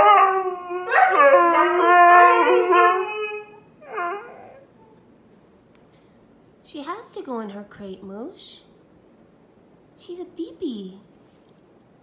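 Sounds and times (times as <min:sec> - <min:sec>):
husky howling: 0:00.0 - 0:05.0.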